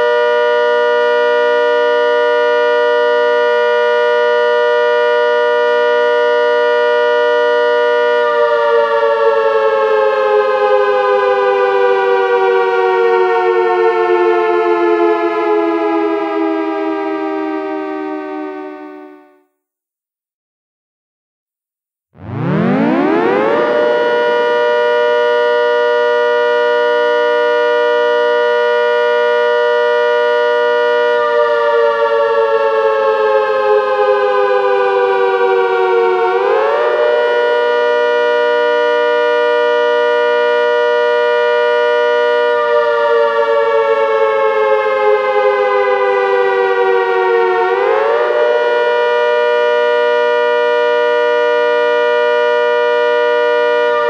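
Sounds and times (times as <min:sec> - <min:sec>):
two-tone siren: 0:00.0 - 0:19.6, 0:22.1 - 0:54.0.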